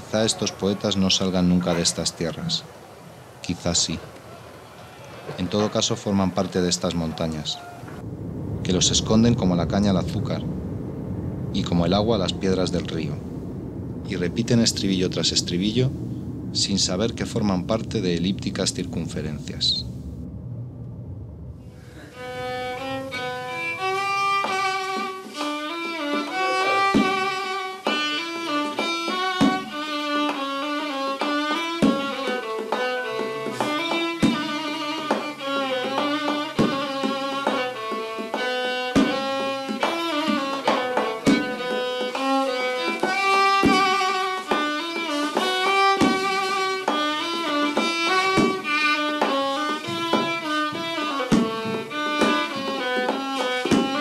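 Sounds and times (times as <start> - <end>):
low drum strokes: 7.8 - 29.9.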